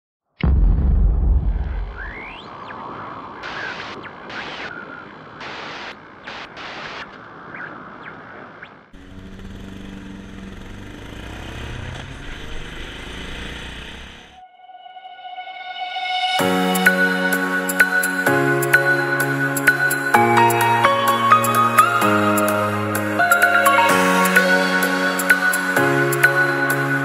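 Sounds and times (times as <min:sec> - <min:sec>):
low boom: 0:00.4 - 0:02.8
motorcycle engine running: 0:09.0 - 0:14.4.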